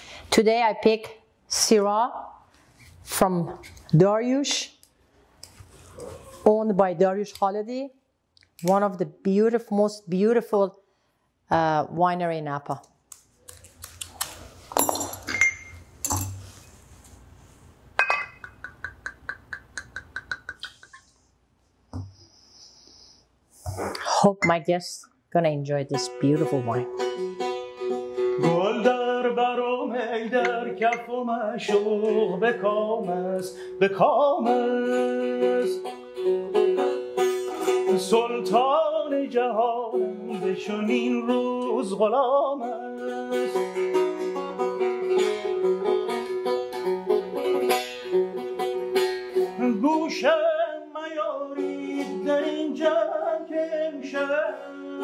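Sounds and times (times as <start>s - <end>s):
plucked lute melody: 25.9s - 28.9s, 35.4s - 38.0s, 43.1s - 49.7s.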